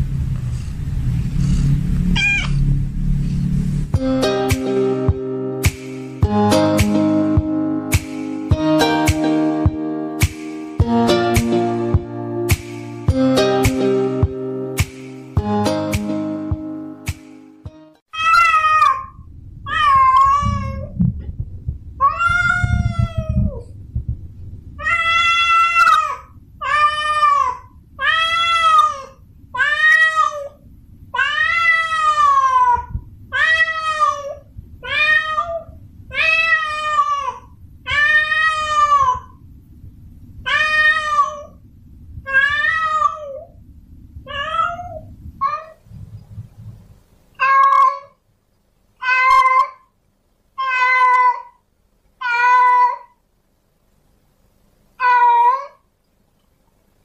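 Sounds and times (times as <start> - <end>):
low steady rumble: 0.0 - 5.6, 18.2 - 47.4
cat yowling: 2.2 - 2.6, 18.1 - 20.9, 22.0 - 23.6, 24.8 - 39.4, 40.4 - 41.6, 42.3 - 43.5, 44.3 - 45.8, 47.4 - 48.2, 49.0 - 49.9, 50.6 - 51.6, 52.2 - 53.2, 55.0 - 55.8.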